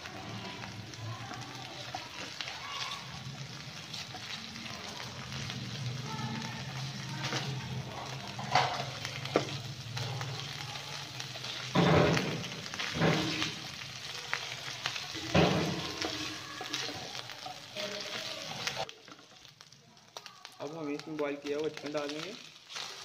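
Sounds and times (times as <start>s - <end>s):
garlic sizzling in hot oil: 0.0s - 23.0s
spatula scraping a pan: 22.6s - 23.0s.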